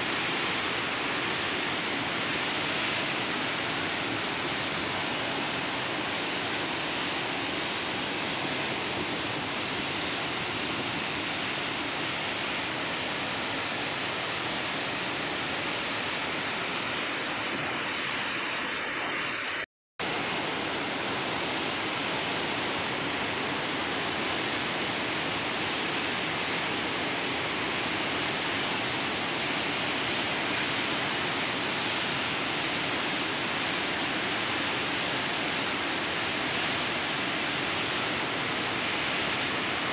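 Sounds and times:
water rushing through spillway: 0.0s - 39.9s.

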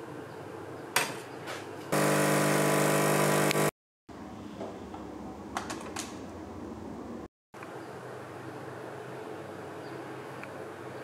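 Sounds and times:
espresso machine pump buzzing: 1.9s - 3.8s.

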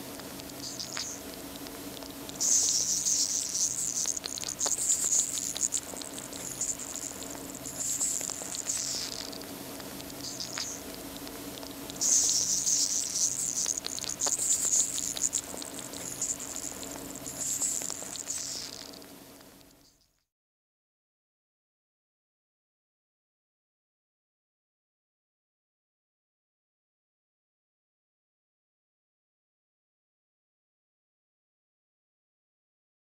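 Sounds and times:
crab hissing crackle: 0.0s - 19.7s
faint low hum: 0.0s - 20.1s.

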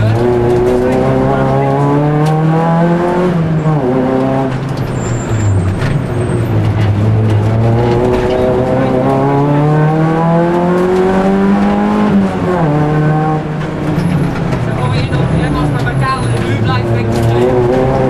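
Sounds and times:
car engine revving from inside: 0.1s - 4.8s, 6.6s - 13.9s.

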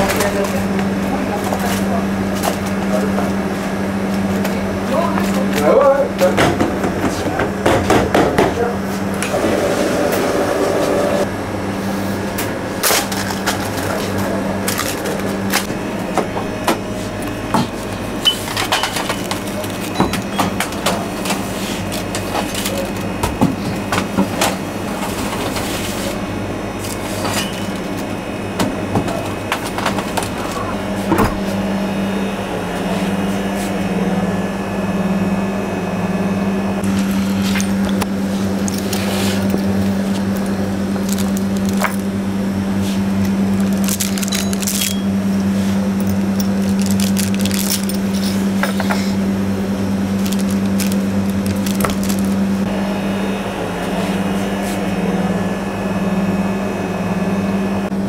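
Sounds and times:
electric machine hum: 0.0s - 58.0s.

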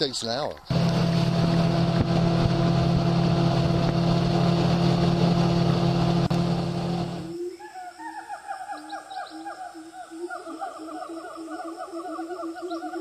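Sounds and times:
outboard motor running: 0.7s - 7.4s.

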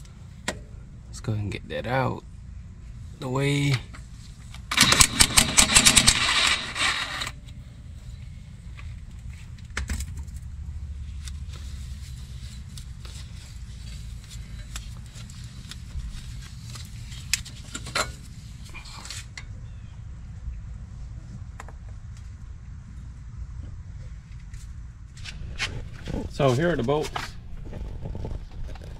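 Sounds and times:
impact wrench rattling: 4.7s - 7.3s.

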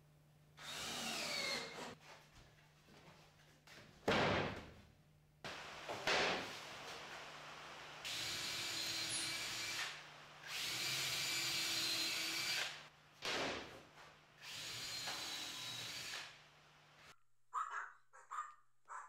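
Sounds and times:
cordless drill driving screws: 0.6s - 2.0s, 8.1s - 12.8s, 14.4s - 16.4s.

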